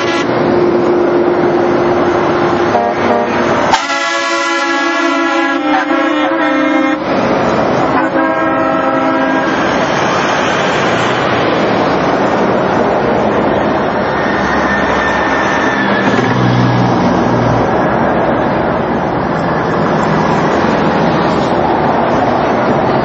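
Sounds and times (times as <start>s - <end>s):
horn blast: 0.0s - 0.5s, 2.6s - 7.1s, 7.8s - 9.7s
road and traffic noise: 0.0s - 23.0s
trucks driving past: 0.0s - 23.0s.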